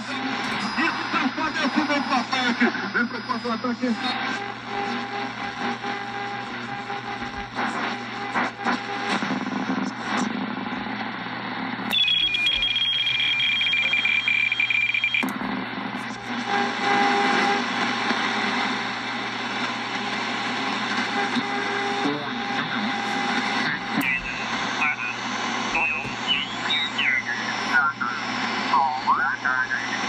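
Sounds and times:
radio static and hiss: 0:00.0 - 0:30.0
garbled radio voice: 0:22.0 - 0:30.0.

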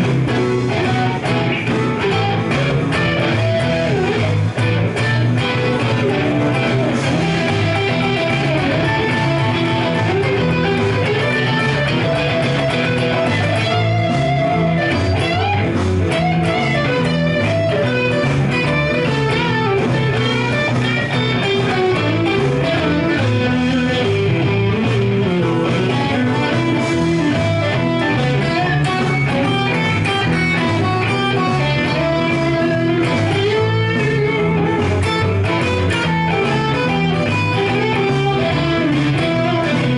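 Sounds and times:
electric guitar blues licks: 0:00.0 - 0:39.9.

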